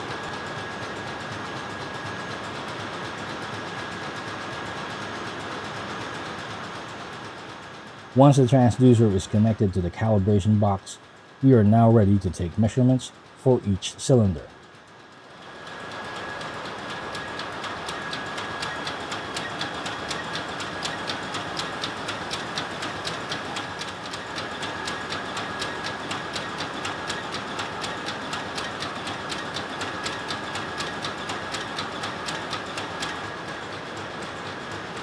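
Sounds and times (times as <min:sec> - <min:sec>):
fast even clicking: 0:15.6 - 0:35.0.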